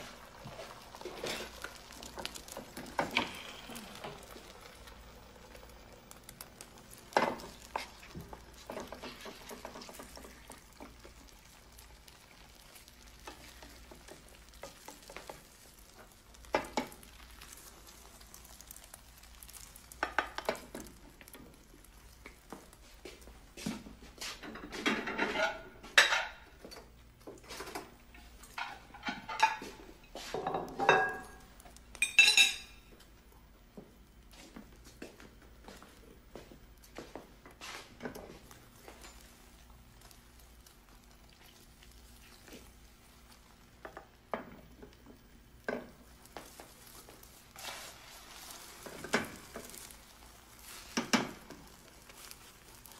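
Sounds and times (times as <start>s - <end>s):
eggs frying in a pan: 0.0s - 52.9s
metal utensil scraping a pan: 24.8s - 26.3s.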